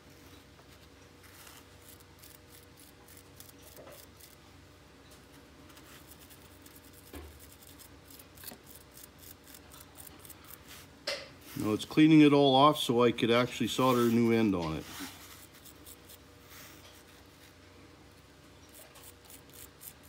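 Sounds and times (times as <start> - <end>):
wire brush scratching: 1.2 - 4.4, 5.7 - 11.8, 13.7 - 17.6, 18.6 - 20.0.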